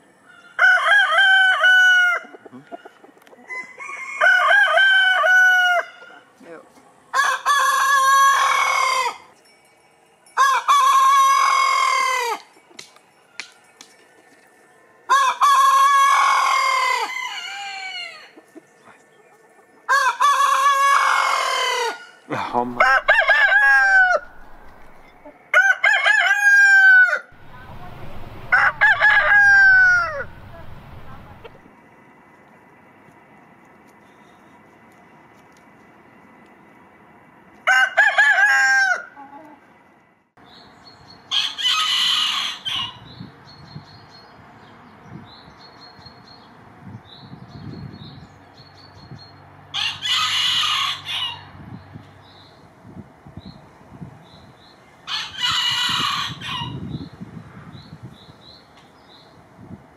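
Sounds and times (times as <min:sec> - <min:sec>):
roosters crowing: 0:00.1 - 0:06.4, 0:07.0 - 0:09.4, 0:10.4 - 0:12.6, 0:15.0 - 0:18.6, 0:19.4 - 0:31.6, 0:37.6 - 0:39.4, 0:41.3 - 0:43.2, 0:49.6 - 0:51.6, 0:55.0 - 0:57.1.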